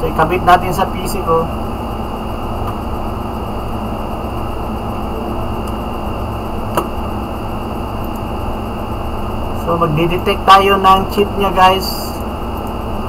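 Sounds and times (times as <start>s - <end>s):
room noise hiss and hum: 0.0s - 13.0s
sharp click: 6.7s - 7.0s.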